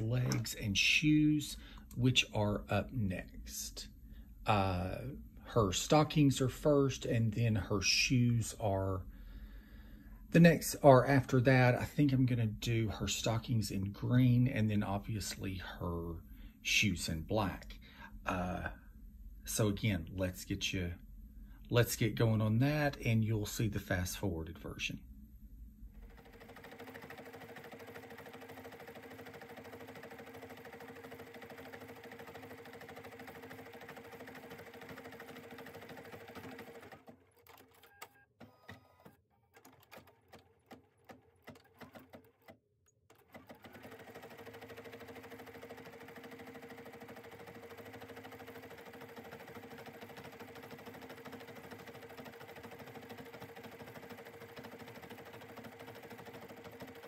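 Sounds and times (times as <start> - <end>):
embroidery machine stitching: 0.0 - 0.6, 26.0 - 57.0.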